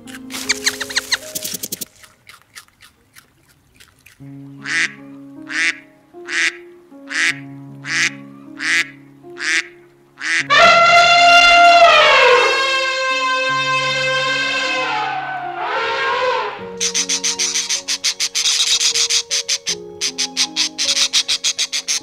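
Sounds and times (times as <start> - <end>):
background music: 0.0 - 2.3, 4.1 - 22.0
duck quacking: 4.6 - 22.0
elephant trumpeting: 10.2 - 22.0.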